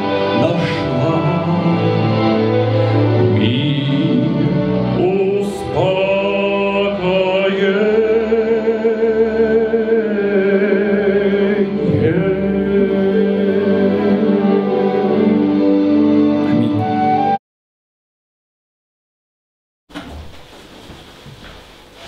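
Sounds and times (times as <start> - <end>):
man singing into a microphone: 0.0 - 15.2.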